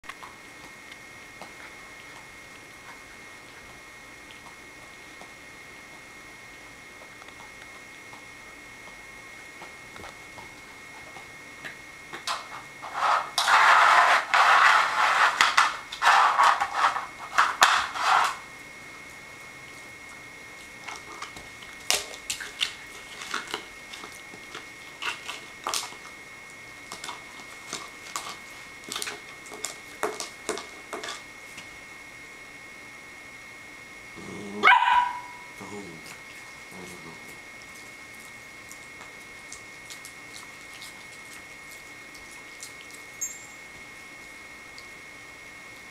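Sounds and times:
puppy chewing plastic bowl: 19.4s - 31.8s, 34.7s - 43.3s.

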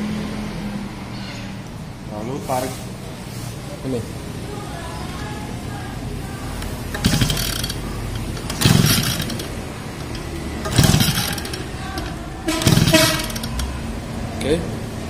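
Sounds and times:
pull-starter whirring: 6.5s - 13.8s.

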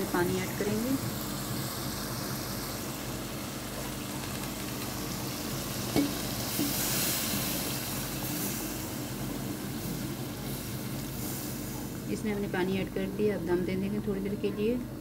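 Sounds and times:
curry sizzling in a pan: 0.0s - 14.0s
spoon knocking on pan: 5.9s - 6.2s.

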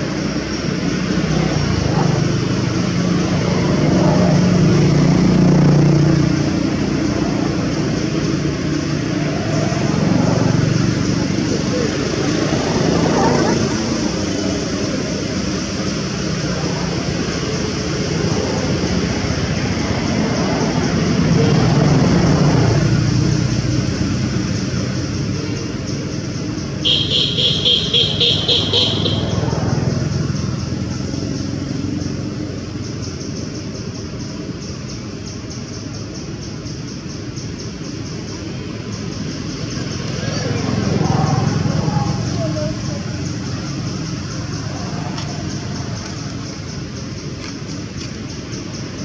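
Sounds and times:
passing vehicle engine rumble: 0.0s - 49.0s
steady high buzz: 26.8s - 29.5s.

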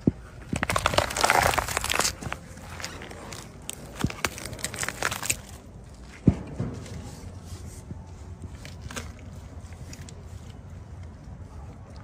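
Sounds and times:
banana peels crackling and squishing: 0.0s - 6.1s, 8.4s - 11.1s.

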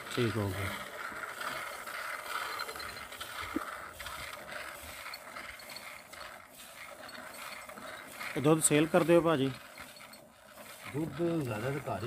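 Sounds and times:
milk squirting into a bucket: 3.1s - 12.0s.

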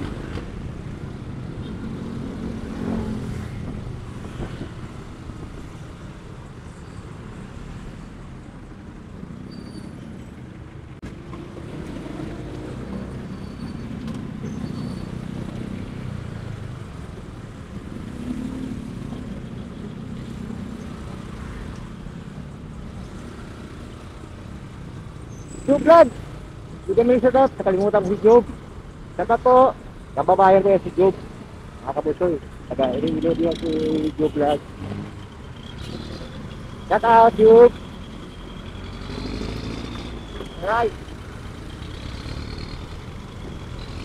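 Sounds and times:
rumble of cars: 0.0s - 44.0s
motorcycle engine: 30.8s - 44.0s.

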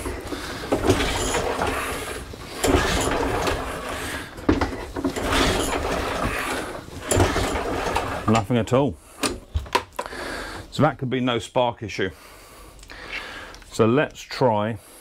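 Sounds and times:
pull-starter cord pulled: 0.0s - 8.5s
lawnmower engine clattering whirr: 0.0s - 9.4s.

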